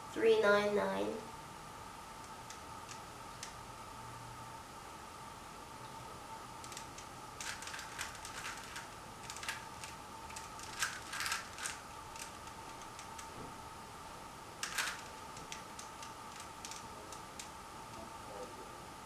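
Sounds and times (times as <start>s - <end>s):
puzzle cube plastic clicking: 6.6s - 13.3s, 14.6s - 17.5s.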